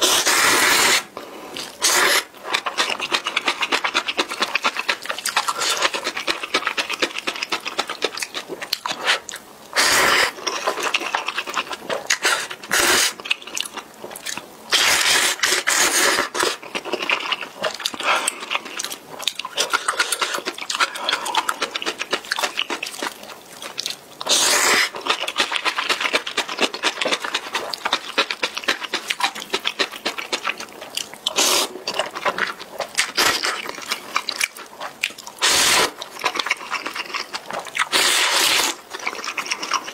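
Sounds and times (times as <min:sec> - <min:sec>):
slurping noodles: 0:00.0 - 0:07.1, 0:08.9 - 0:13.2, 0:14.7 - 0:18.8, 0:24.2 - 0:27.7, 0:31.3 - 0:34.4, 0:35.4 - 0:39.9
wet chewing: 0:00.0 - 0:39.9.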